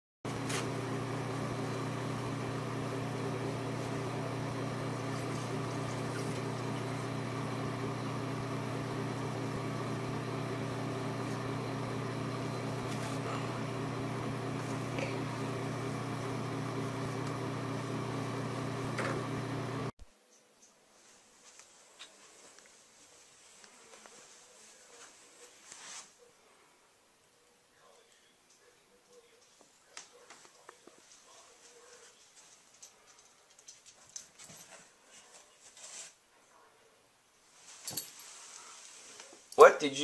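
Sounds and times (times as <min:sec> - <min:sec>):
low mechanical hum: 0:00.3 - 0:19.9
faint rustles: 0:37.4 - 0:39.5.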